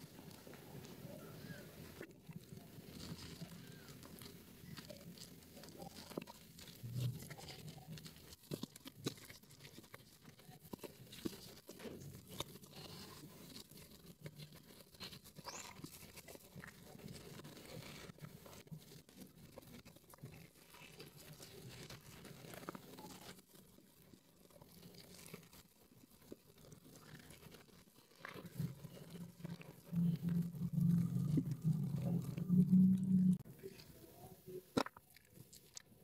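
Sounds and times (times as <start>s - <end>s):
hands squelching wet soap lather: 34.7s - 36.0s.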